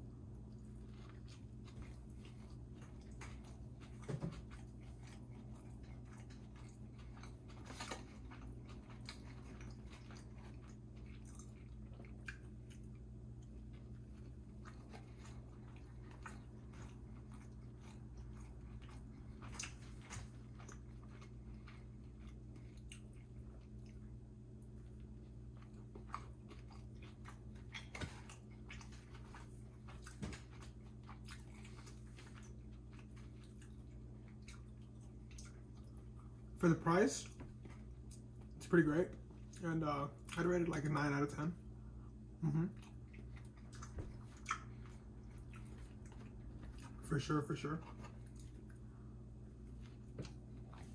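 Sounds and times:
person chewing food: 0.0 - 50.9
steady low hum: 0.0 - 50.9.

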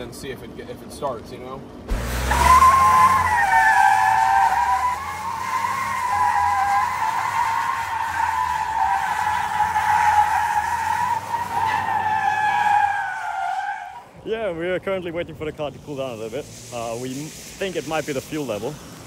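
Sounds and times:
engine running low: 0.0 - 11.6
tyres squealing on wet asphalt: 1.9 - 14.3, 15.1 - 19.0.

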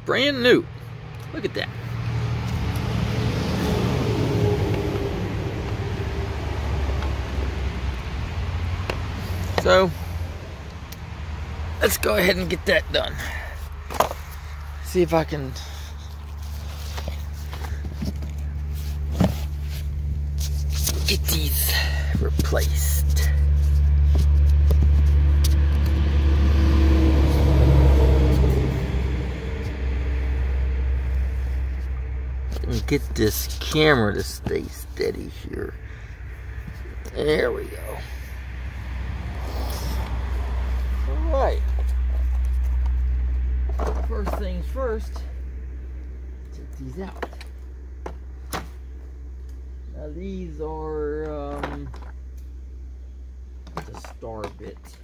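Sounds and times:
truck passing: 0.0 - 51.5
low engine rumble: 0.0 - 55.0
faint hum: 15.4 - 53.9.

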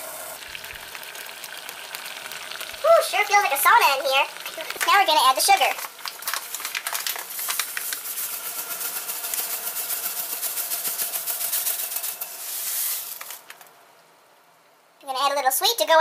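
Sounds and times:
grainy hiss with fine crackles: 0.0 - 16.0
sugar pouring into a pot: 0.1 - 3.4, 4.6 - 13.7.

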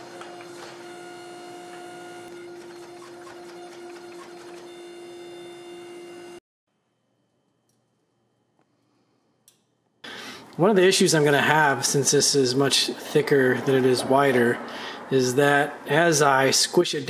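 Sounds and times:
gas forge humming: 0.0 - 6.4.

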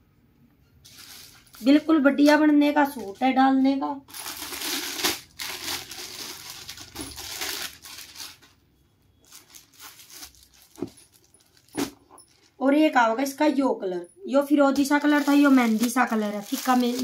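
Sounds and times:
fabric rustling and crinkling: 0.8 - 8.6, 9.2 - 12.6, 14.7 - 17.0.

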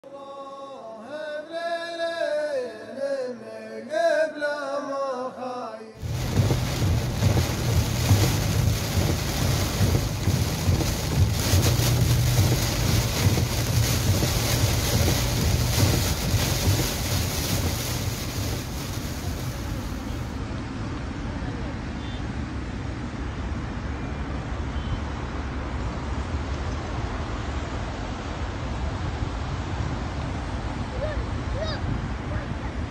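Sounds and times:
heavy rain: 6.0 - 20.4
wind buffeting microphone: 6.0 - 20.4.

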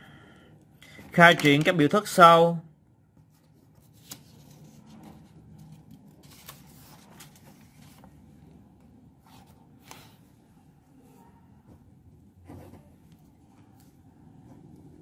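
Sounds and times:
paper rustling: 3.2 - 8.5.

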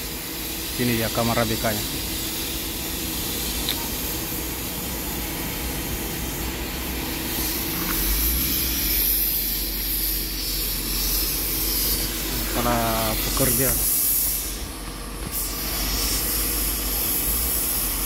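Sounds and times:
faint machine hum: 0.0 - 18.0
steady hiss: 0.0 - 18.0.

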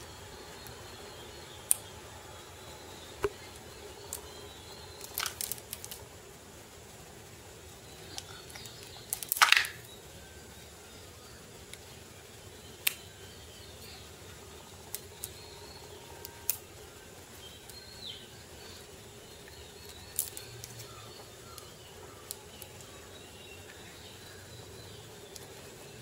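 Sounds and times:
faint bird chirps: 0.0 - 6.1, 7.6 - 26.0
plastic track pieces clicking: 5.0 - 6.0, 8.1 - 9.9, 19.9 - 20.9.

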